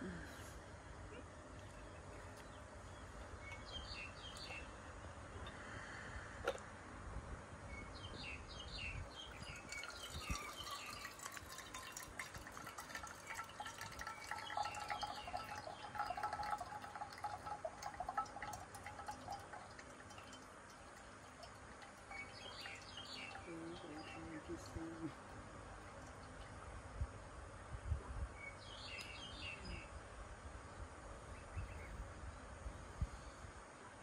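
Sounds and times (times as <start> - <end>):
tea trickling into glass: 9.2 - 25.1.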